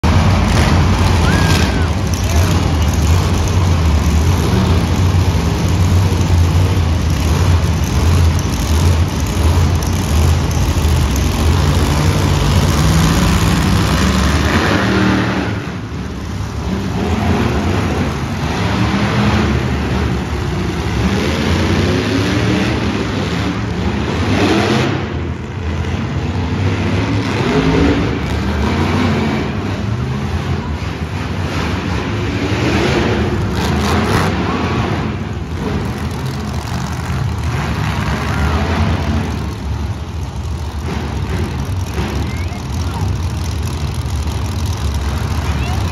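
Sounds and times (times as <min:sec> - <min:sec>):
monster truck engines revving: 0:00.0 - 0:45.9.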